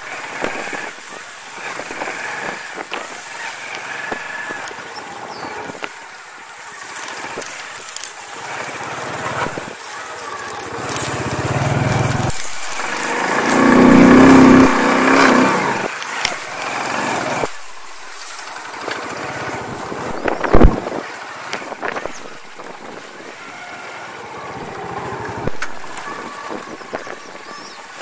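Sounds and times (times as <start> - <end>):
moped engine revving: 6.8 - 21.0, 24.2 - 27.8.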